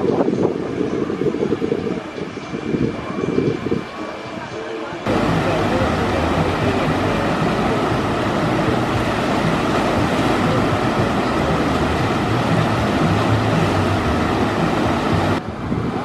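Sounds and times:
water gushing and splashing: 0:05.1 - 0:15.4.

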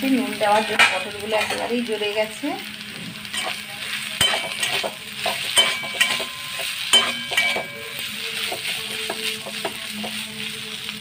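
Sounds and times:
oil sizzling in pan: 0:00.0 - 0:11.0
spatula scraping pan: 0:03.3 - 0:10.4.

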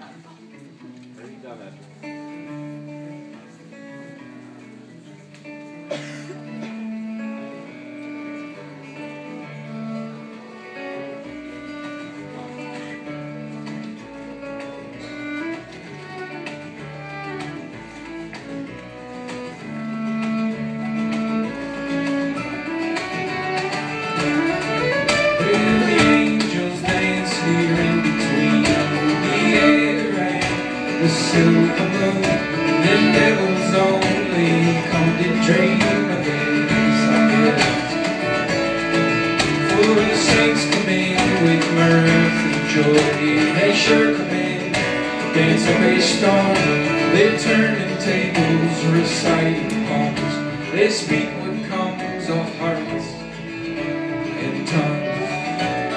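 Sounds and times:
acoustic guitar: 0:00.0 - 0:55.9
fiddle: 0:06.4 - 0:55.9
upright bass: 0:11.4 - 0:55.9.

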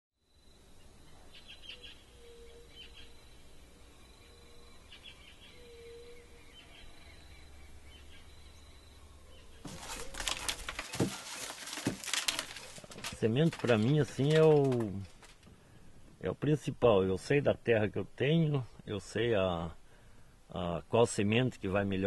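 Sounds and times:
faint birds chirping: 0:00.3 - 0:11.8
maize kernels crackling and pattering: 0:09.6 - 0:15.5.

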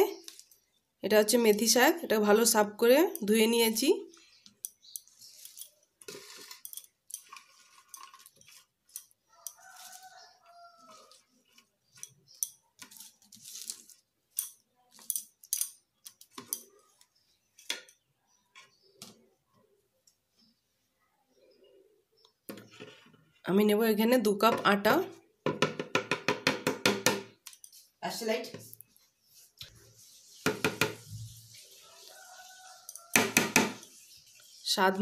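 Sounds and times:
leaves rustling: 0:12.9 - 0:14.0.

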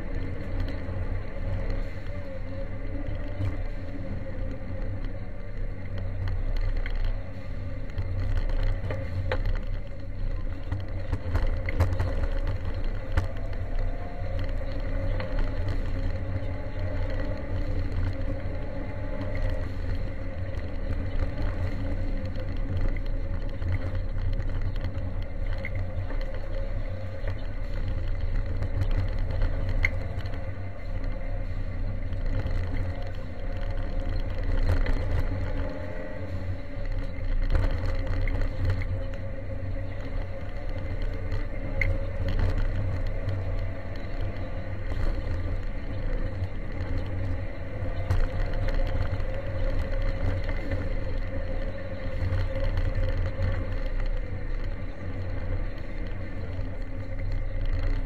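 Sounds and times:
car engine running hard: 0:00.0 - 0:58.0.

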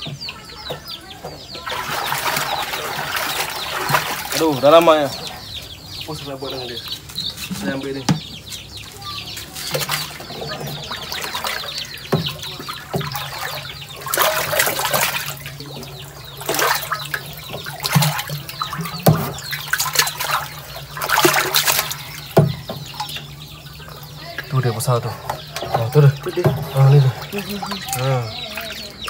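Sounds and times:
water splashing in a container: 0:01.4 - 0:05.1, 0:09.5 - 0:29.0.

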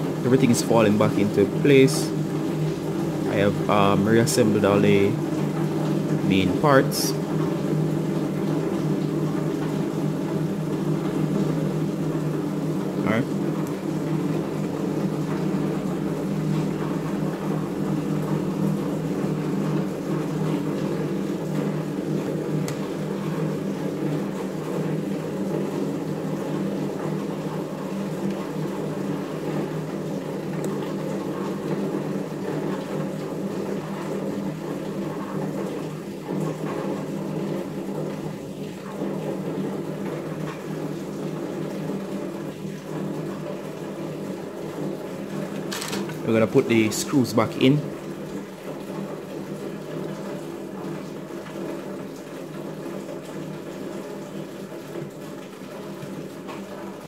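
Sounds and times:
steady low hum: 0:00.0 - 0:25.4.

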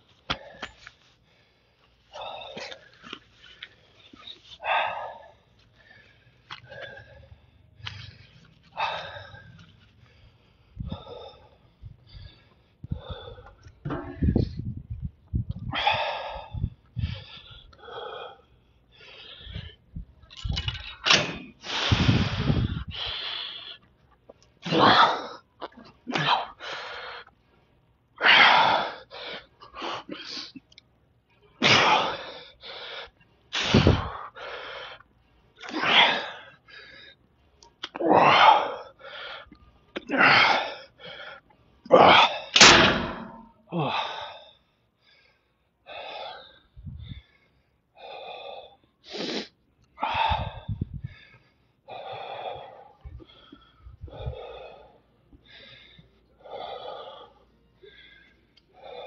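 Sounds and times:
man panting: 0:00.0 - 0:14.7, 0:15.5 - 0:20.1, 0:21.6 - 0:23.9, 0:26.0 - 0:27.4, 0:31.9 - 0:35.1, 0:38.1 - 0:59.0
man breathing forcefully: 0:03.5 - 0:14.8, 0:15.6 - 0:20.1, 0:21.0 - 0:23.9, 0:26.2 - 0:27.5, 0:31.8 - 0:35.0, 0:42.0 - 0:59.0.

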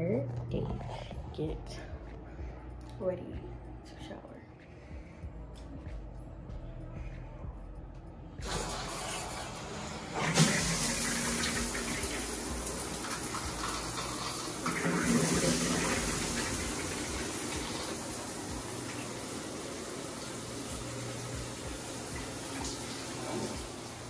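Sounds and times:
water running into bathtub: 0:08.4 - 0:24.0.

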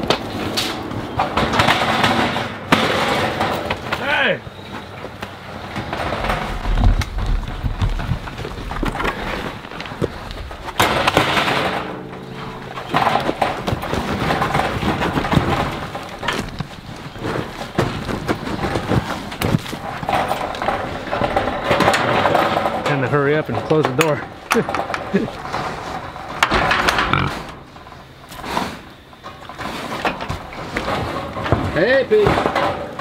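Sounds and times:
pigs trotting and rustling: 0:00.0 - 0:33.0
pig grunting: 0:26.8 - 0:27.7.

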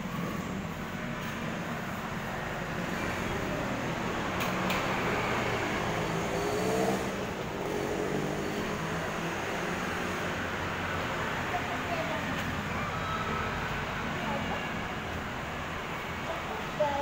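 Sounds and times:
vehicle engines humming: 0:00.0 - 0:17.0.

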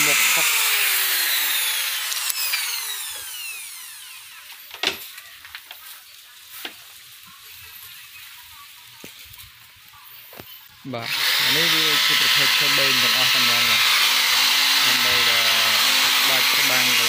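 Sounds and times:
electric drill spinning down: 0:00.0 - 0:05.0, 0:11.0 - 0:17.0.

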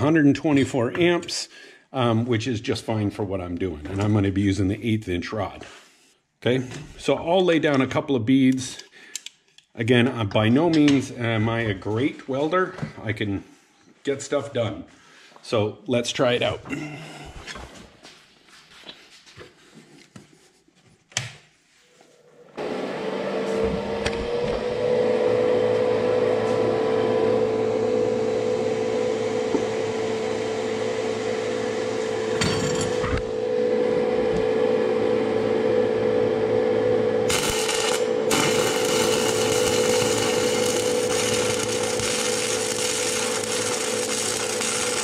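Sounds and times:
welder cooling fan humming: 0:22.4 - 0:45.0
welding arc crackling: 0:37.2 - 0:45.0.

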